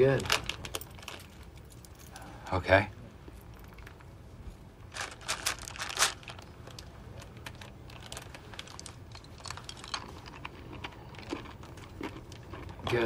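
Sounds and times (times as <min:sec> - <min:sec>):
candies rattling from paper bag: 0:00.0 - 0:01.5, 0:04.9 - 0:11.5
small clicks and rustles: 0:00.2 - 0:02.2, 0:03.2 - 0:13.0.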